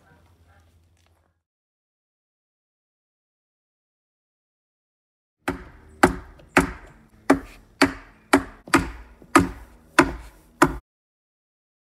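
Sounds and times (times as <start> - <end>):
adze chopping wood: 5.4 - 10.8.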